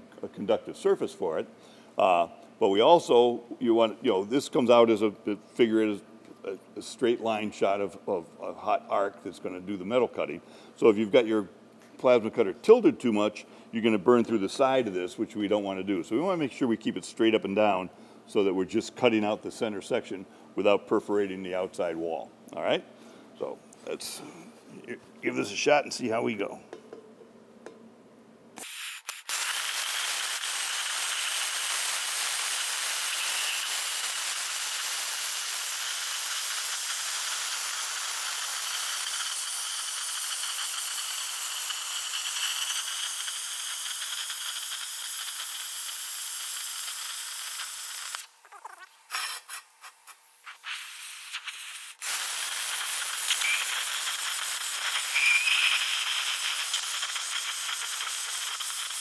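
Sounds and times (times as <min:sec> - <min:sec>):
plasma cutter hissing: 0:28.6 - 0:48.3, 0:49.1 - 0:59.0.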